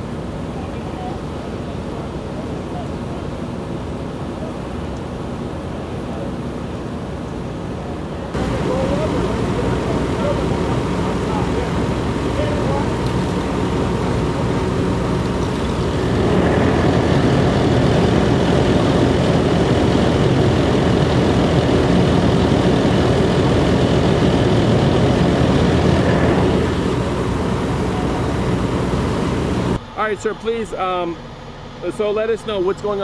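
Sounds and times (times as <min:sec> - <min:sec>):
fire engine diesel engine running: 0:07.6 - 0:33.0.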